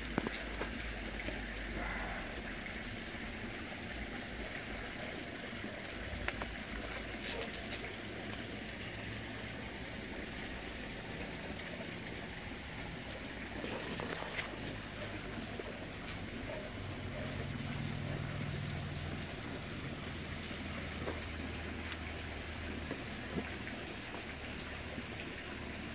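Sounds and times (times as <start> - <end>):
steady rushing hiss: 0.0 - 16.4.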